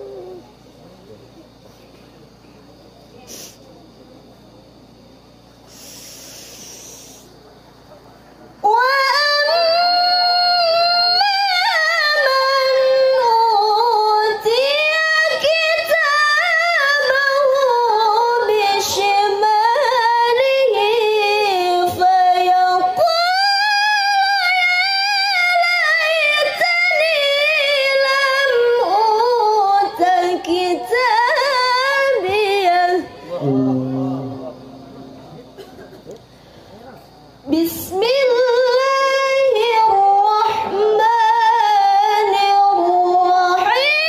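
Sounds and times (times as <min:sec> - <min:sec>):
woman chanting into a microphone: 0:08.7 - 0:34.6, 0:37.5 - 0:44.0.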